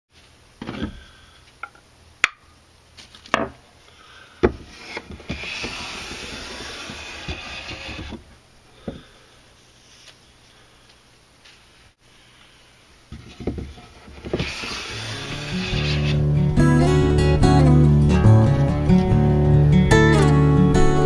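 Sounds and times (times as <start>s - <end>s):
hand plane stroke on wood: 4.6s - 8.2s, 14.0s - 16.4s
wooden knocks and taps: 13.1s - 14.5s.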